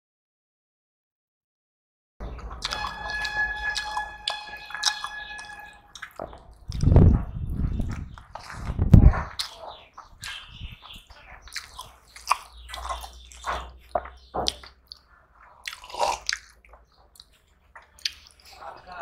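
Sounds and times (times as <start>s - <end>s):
open-mouth chewing: 2.3s - 18.6s
wet squishing of food by hand: 8.0s - 18.6s.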